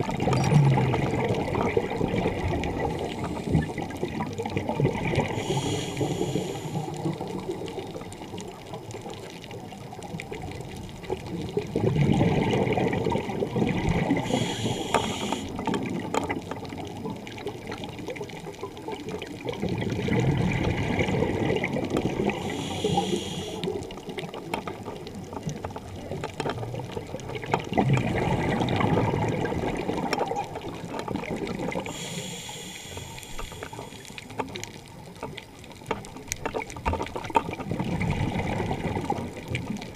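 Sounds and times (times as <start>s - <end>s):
regulator inhale hiss: 3.0s - 3.8s, 5.2s - 7.2s, 14.2s - 15.6s, 22.2s - 23.9s, 31.8s - 34.5s
bubbling exhaust: 11.8s - 15.6s.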